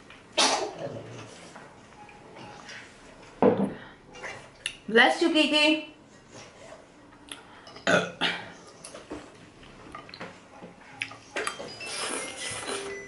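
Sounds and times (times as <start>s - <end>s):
woman burping: 7.8s - 8.5s.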